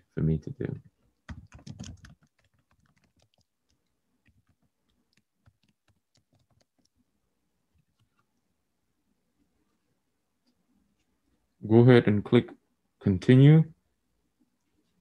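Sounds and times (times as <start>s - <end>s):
typing on laptop keyboard: 0.8s - 7.0s.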